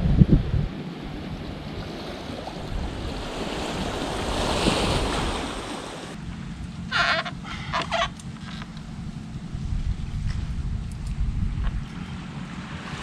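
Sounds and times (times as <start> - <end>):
wind on microphone: 0.0 - 6.2, 8.7 - 13.0
small waves washing on sand: 1.2 - 6.2.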